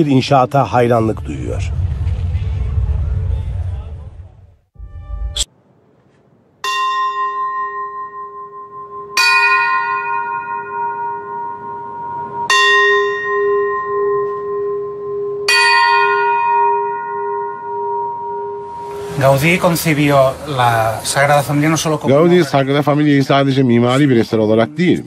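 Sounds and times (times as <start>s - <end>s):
bell ringing: 6.6s - 20.2s.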